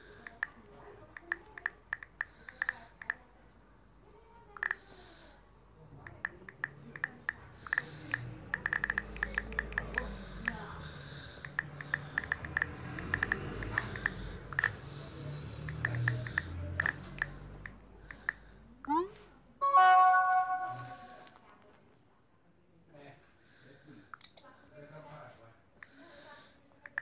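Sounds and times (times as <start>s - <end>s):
phone keyboard clicks: 6.0s - 10.1s.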